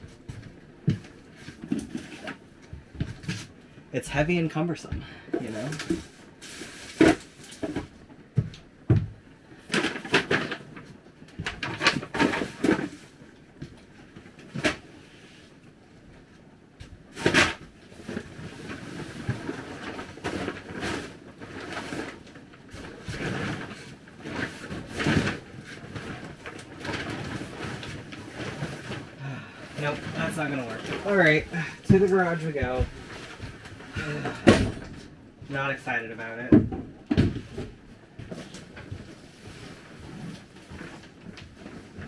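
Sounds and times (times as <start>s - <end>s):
objects knocking and bumping: 29.7s - 35.1s, 36.5s - 39.2s.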